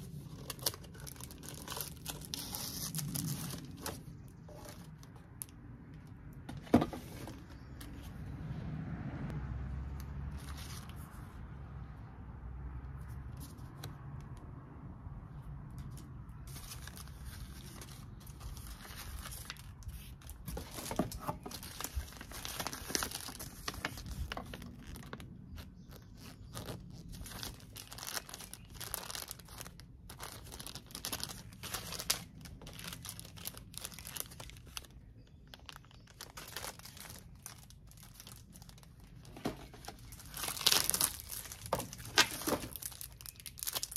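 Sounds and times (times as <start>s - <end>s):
plastic packaging crinkling: 0.0s - 5.6s, 15.8s - 43.9s.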